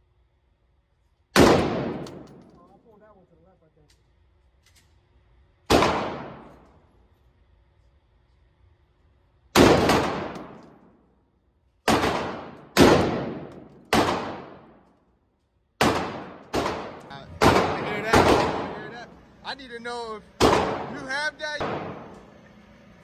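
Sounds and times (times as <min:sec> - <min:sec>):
rifle shots ringing indoors: 0:01.3 - 0:02.8, 0:04.6 - 0:07.2, 0:09.4 - 0:11.2, 0:11.8 - 0:19.2, 0:20.3 - 0:22.4.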